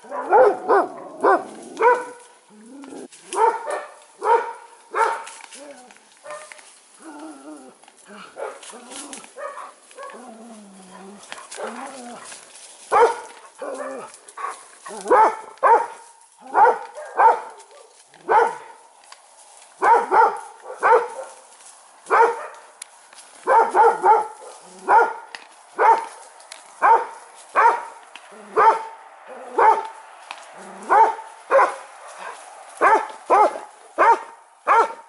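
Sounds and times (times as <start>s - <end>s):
animal barking: 0.0s - 2.3s, 3.3s - 5.3s, 8.2s - 18.8s, 19.8s - 21.4s, 22.1s - 22.7s, 23.4s - 26.2s, 26.8s - 30.0s, 30.6s - 35.0s.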